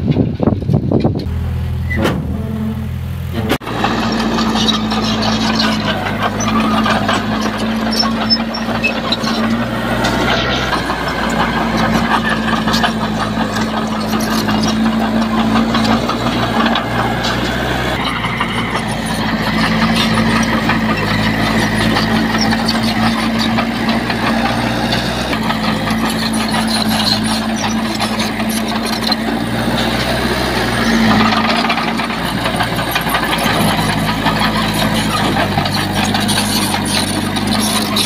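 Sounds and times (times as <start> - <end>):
diesel machinery engine: 0.0 - 38.0.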